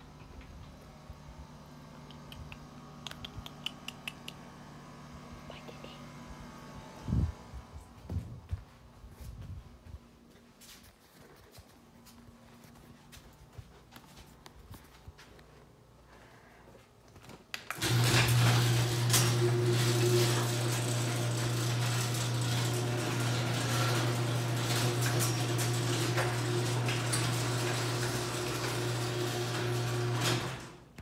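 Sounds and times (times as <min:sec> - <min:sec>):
garage door motor humming: 0:00.0 - 0:08.2, 0:17.7 - 0:31.0.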